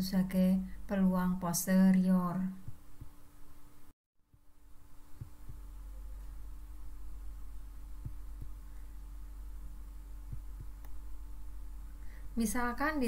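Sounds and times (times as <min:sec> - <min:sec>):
low electrical hum: 0:00.0 - 0:13.0
soft low thumps: 0:02.5 - 0:03.3, 0:05.1 - 0:12.0
faint steady tone: 0:02.5 - 0:12.6.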